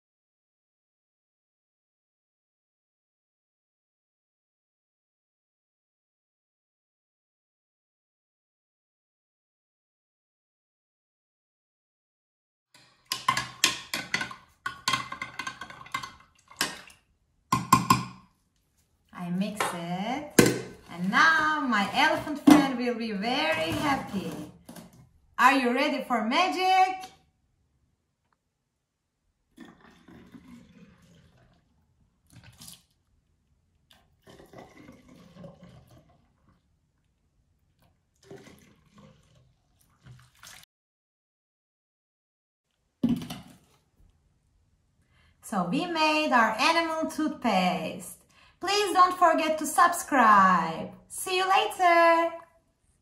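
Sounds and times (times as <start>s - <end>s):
liquid pouring into bottles: 29.6s - 32.9s, 37.8s - 40.6s.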